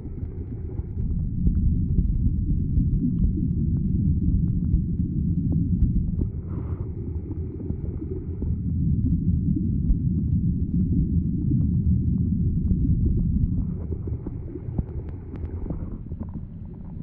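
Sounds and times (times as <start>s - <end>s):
muffled underwater water rumble: 0.0s - 17.0s
faint clicks: 13.9s - 16.4s.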